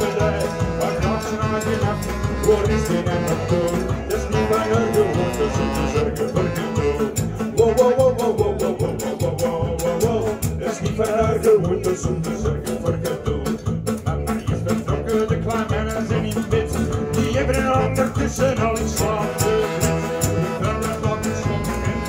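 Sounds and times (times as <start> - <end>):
saxophone melody: 0.0 - 8.1, 16.6 - 22.0
small band playing live: 0.0 - 22.0.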